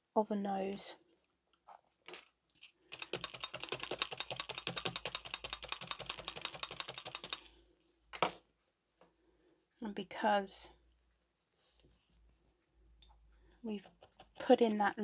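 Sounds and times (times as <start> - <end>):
felting needle clicking: 2.9 - 7.5.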